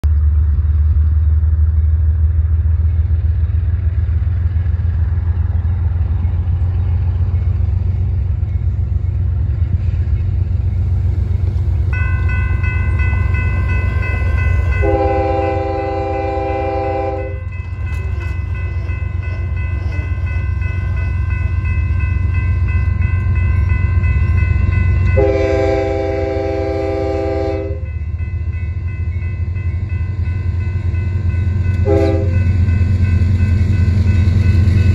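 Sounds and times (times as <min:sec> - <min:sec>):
railroad crossing bell ringing: 0:05.2 - 0:34.9
locomotive horn blasts: 0:13.3 - 0:17.6, 0:25.0 - 0:27.9, 0:31.8 - 0:32.5.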